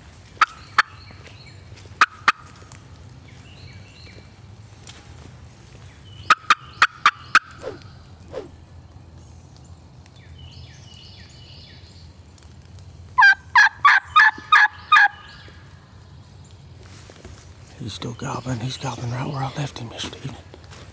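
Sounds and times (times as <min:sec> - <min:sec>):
turkey yelps on a diaphragm call: 0:13.2 - 0:15.2.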